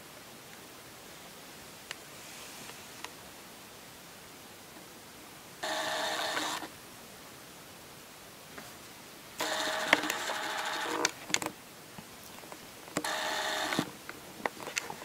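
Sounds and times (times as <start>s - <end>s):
small motor buzzing: 5.6s - 6.6s, 13.0s - 13.9s.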